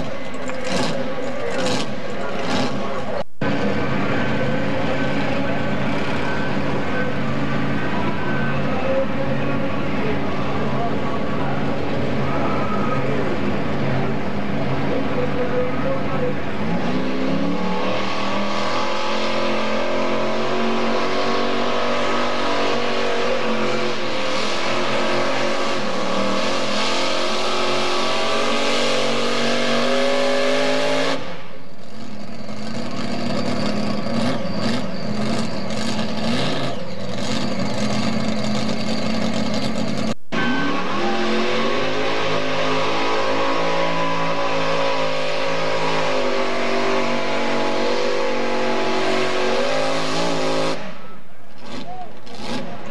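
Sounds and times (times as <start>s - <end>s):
engine crackles: 0.0s - 40.4s
another engine revving: 0.0s - 51.0s
tractor engine at high revs: 0.0s - 52.9s.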